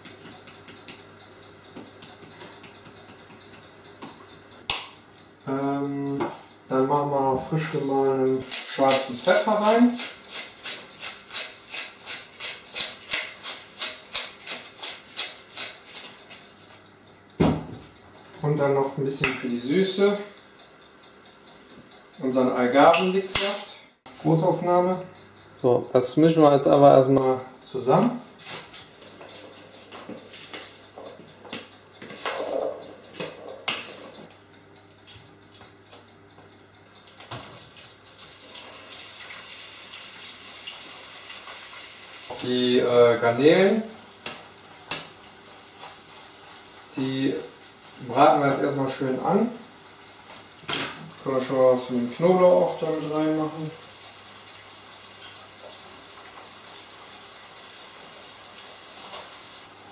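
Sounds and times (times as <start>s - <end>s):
pepper mill grinding: 8.2s - 16.4s.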